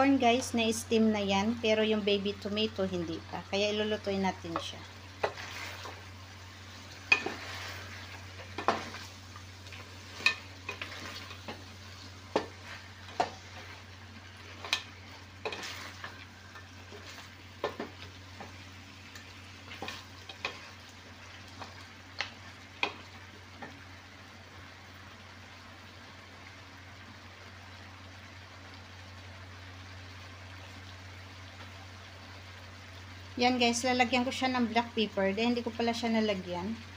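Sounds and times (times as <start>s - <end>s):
food sizzling in pot: 0.0s - 36.9s.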